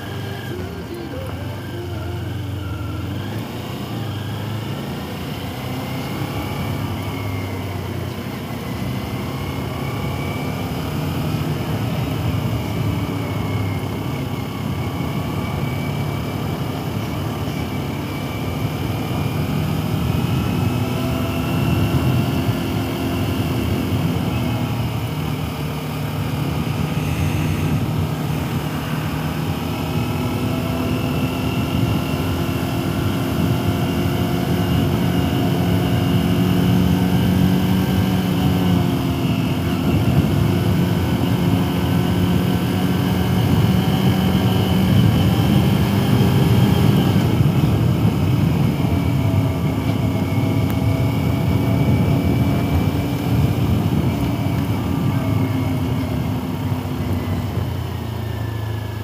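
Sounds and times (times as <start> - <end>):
motorcycle engine revving: 0.0 - 59.0
road and wind noise: 0.0 - 59.0.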